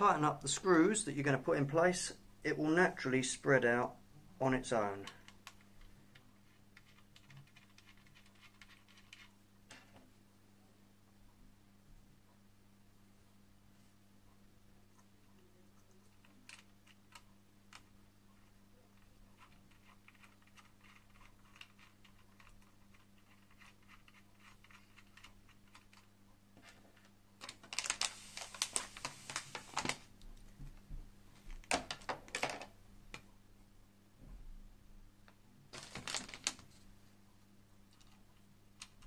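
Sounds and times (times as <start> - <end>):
plastic bag crinkling: 27.4 - 30.1, 35.7 - 36.8.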